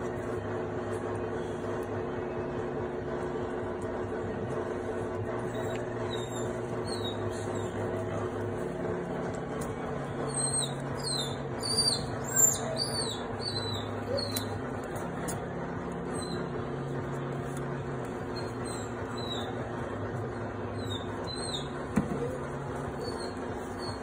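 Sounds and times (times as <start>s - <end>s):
steady low hum: 0.0s - 24.0s
puppy squeaking: 5.4s - 8.4s, 10.1s - 15.4s, 16.1s - 16.6s, 18.2s - 19.7s, 20.6s - 24.0s.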